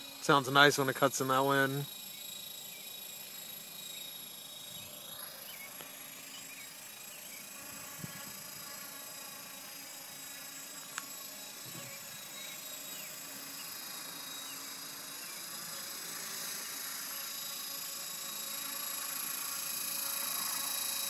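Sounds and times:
rc helicopter whine: 0:00.0 - 0:21.0.

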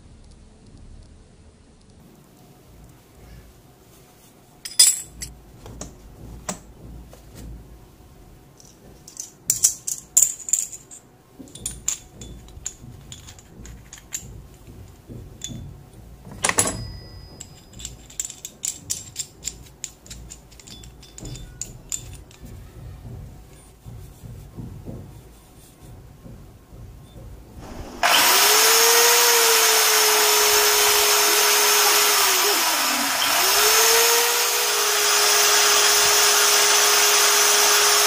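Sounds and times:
metal hole saw parts clinking: 0:04.6 - 0:05.3, 0:08.6 - 0:22.6.

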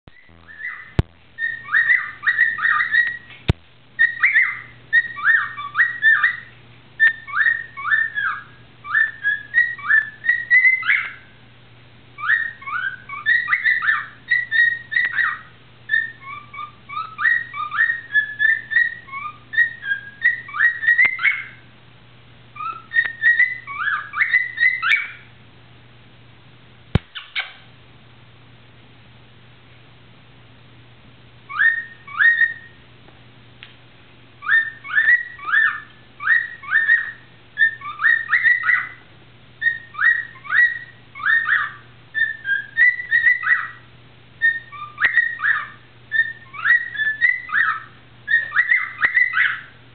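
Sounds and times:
cockatiel whistling: 0:00.1 - 0:03.3, 0:04.0 - 0:11.3, 0:12.2 - 0:21.6, 0:22.6 - 0:25.3, 0:31.5 - 0:32.8, 0:34.4 - 0:39.0, 0:39.6 - 0:43.8, 0:44.4 - 0:49.8.

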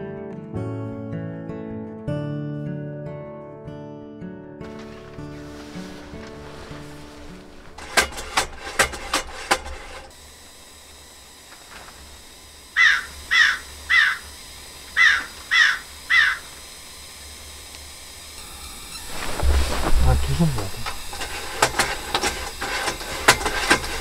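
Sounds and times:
heater ignition clicks: 0:04.7 - 0:24.0
crow cawing: 0:12.8 - 0:14.4, 0:15.0 - 0:16.6.

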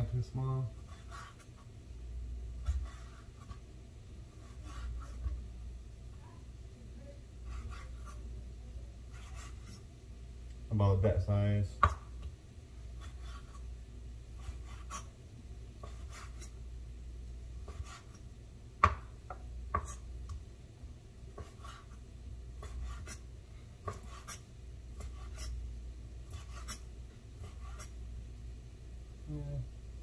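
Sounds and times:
knife tapping on wooden board: 0:18.8 - 0:20.4.

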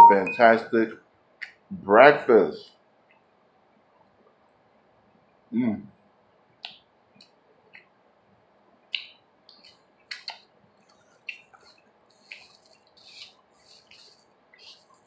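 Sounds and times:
eating clicks and smacks: 0:06.6 - 0:08.0, 0:08.8 - 0:15.0.

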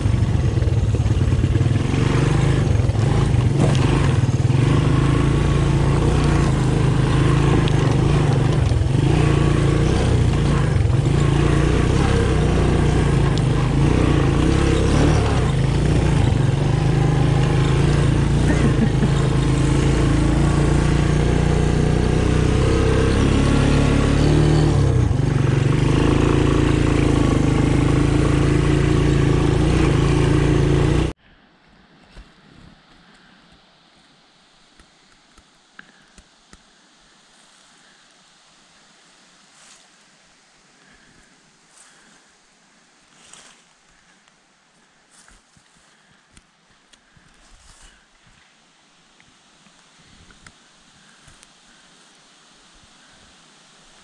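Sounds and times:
three-wheeler engine running: 0:00.0 - 0:31.2.

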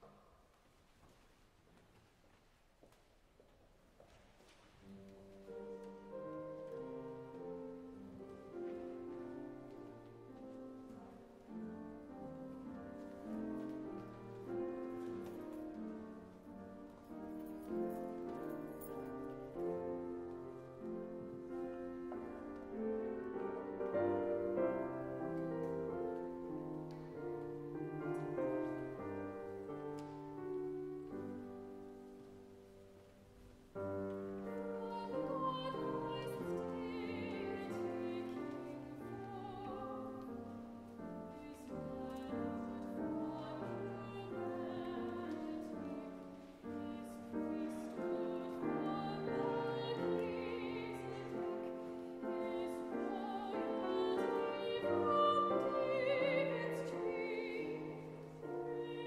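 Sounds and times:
slow keyboard accompaniment: 0:04.8 - 0:59.0
woman singing with vibrato: 0:34.5 - 0:40.4, 0:41.2 - 0:59.0.

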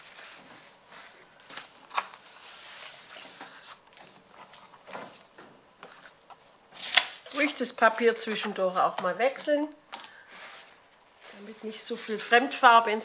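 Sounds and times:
paper rustling: 0:10.0 - 0:13.0.

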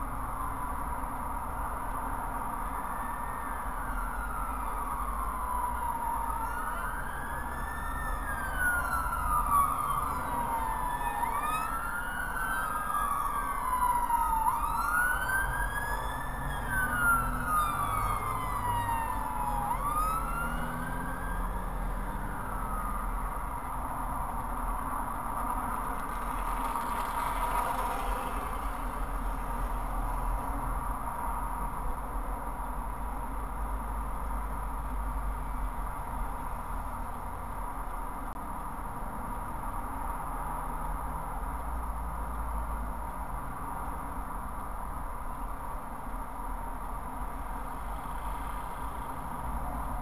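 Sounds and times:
emergency siren wailing: 0:02.6 - 0:23.7, 0:48.0 - 0:50.0.

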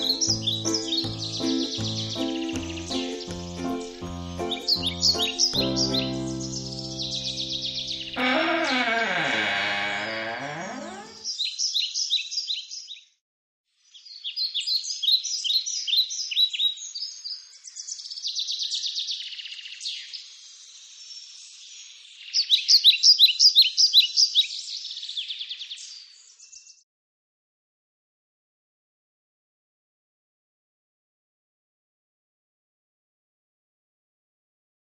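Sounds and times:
music: 0:00.0 - 0:08.2
songbird chirping and trilling: 0:00.0 - 0:13.1, 0:13.8 - 0:26.8.

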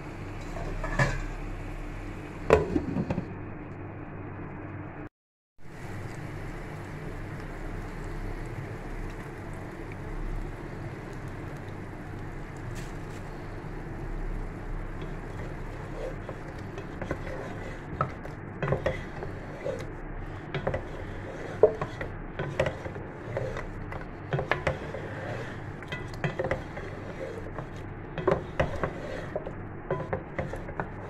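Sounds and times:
spatula scraping a wok: 0:00.4 - 0:01.5, 0:12.8 - 0:31.0
food sizzling: 0:05.7 - 0:23.6.

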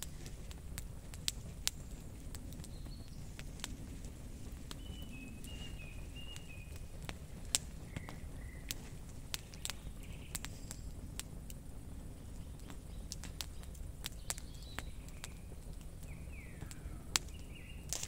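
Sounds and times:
campfire crackling and popping: 0:00.0 - 0:18.0
bird chirping: 0:02.5 - 0:03.5, 0:04.5 - 0:11.1, 0:12.0 - 0:18.0.

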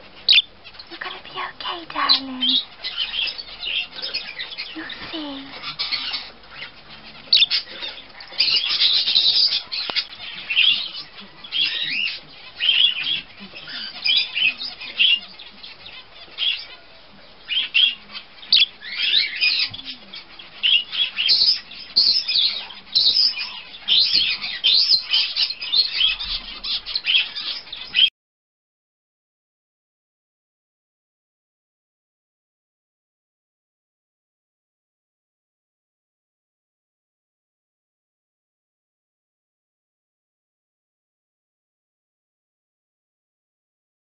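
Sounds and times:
budgerigar chattering: 0:00.2 - 0:28.1.

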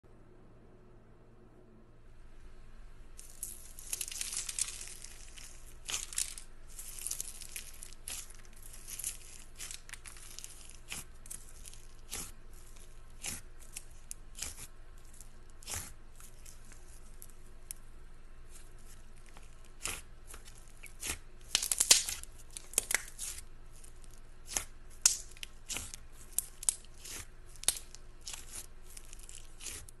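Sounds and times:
fingers poking slime: 0:05.9 - 0:17.8, 0:19.3 - 0:23.4, 0:24.4 - 0:29.9
slime crackly pops and clicks: 0:19.3 - 0:23.4, 0:24.4 - 0:29.9.

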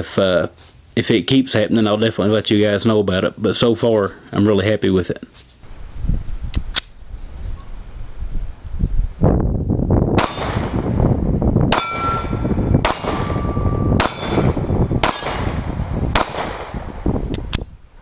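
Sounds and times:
bullets clanging on steel target: 0:10.2 - 0:10.6, 0:11.7 - 0:15.5
pistol shots: 0:10.2 - 0:11.0, 0:11.7 - 0:16.8.

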